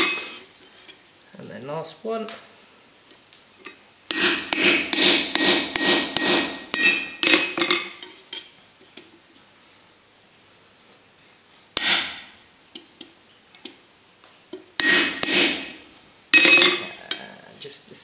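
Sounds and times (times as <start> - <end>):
hammer striking metal: 4.1 - 8.0, 11.8 - 12.3, 14.8 - 15.8, 16.4 - 17.0.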